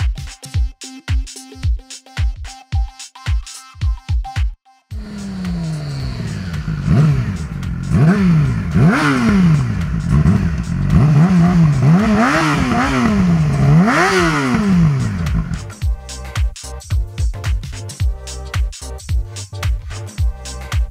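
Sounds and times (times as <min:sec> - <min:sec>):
motorcycle engine revving: 0:05.0 - 0:15.8.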